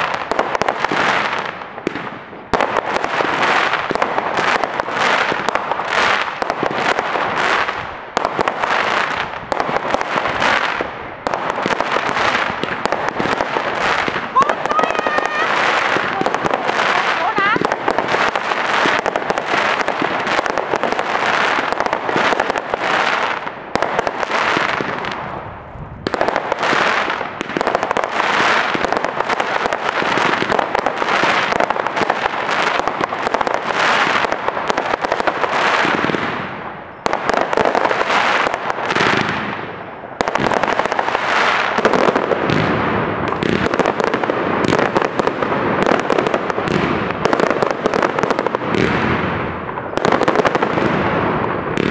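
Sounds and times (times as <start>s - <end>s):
fireworks bangs and crackling: 0.0s - 51.9s.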